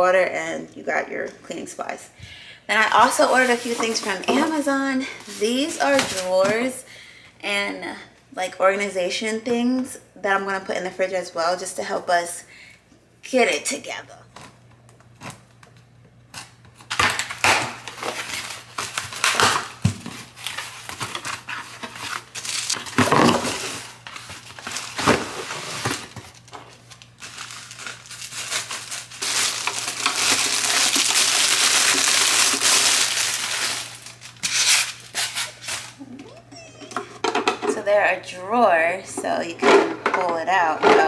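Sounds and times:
packaging rustling and crinkling: 0:03.0 - 0:06.6, 0:16.4 - 0:36.1.

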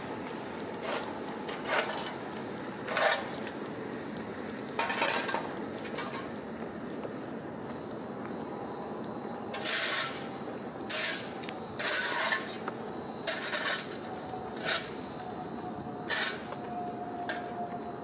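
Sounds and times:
city background hum: 0:00.0 - 0:18.0.

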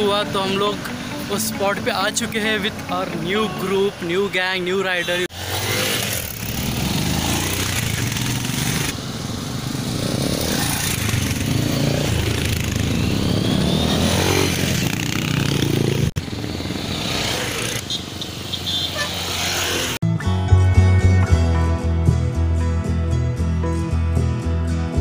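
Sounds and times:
motorcycles revving past: 0:05.3 - 0:20.0.

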